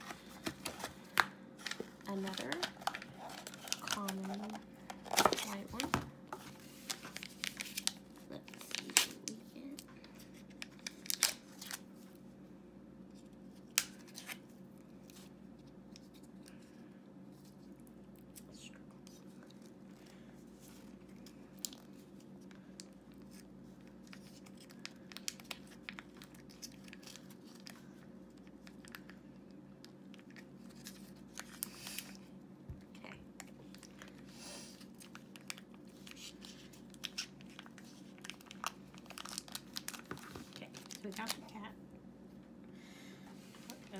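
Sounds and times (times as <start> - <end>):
steady low hum: 0.0 - 43.9
cardboard tearing and crinkling: 10.9 - 11.8, 38.2 - 41.3.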